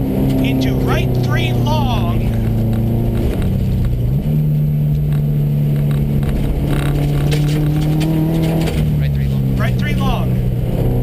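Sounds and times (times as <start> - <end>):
rally car engine revving: 0.0 - 11.0
tyres on gravel: 5.8 - 10.2.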